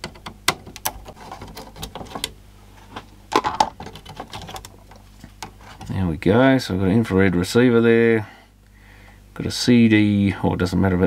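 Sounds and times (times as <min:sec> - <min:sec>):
plastic clicks and knocks: 0:00.0 - 0:02.4, 0:03.3 - 0:05.9
plastic parts clattering: 0:00.0 - 0:02.4, 0:03.3 - 0:05.9.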